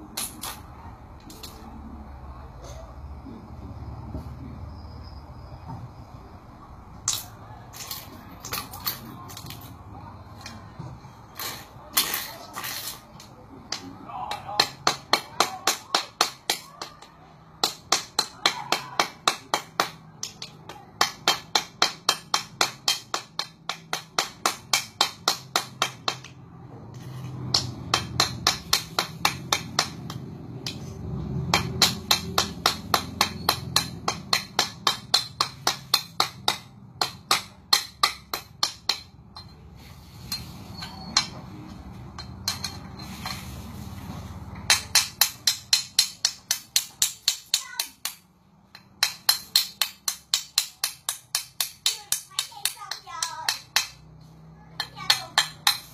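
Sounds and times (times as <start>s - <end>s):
metal cleaver striking stone: 31.5s - 39.6s, 44.7s - 54.0s.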